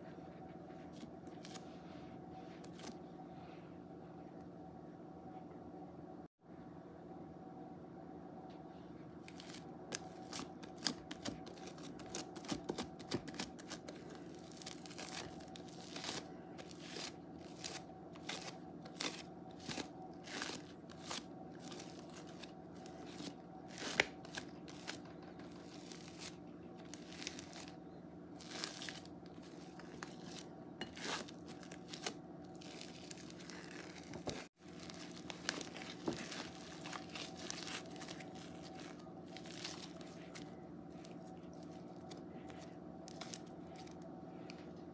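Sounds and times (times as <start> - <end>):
foam beads crackling in slime: 9.3 - 27.8, 28.4 - 40.4, 42.5 - 43.8.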